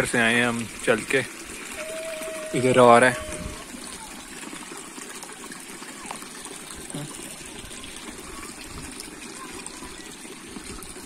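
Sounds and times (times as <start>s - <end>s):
mountain stream flowing: 0.0s - 11.0s.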